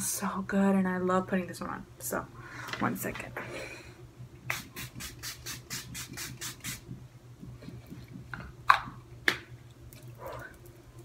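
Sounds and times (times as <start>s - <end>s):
spray bottle misting: 4.5s - 7.0s.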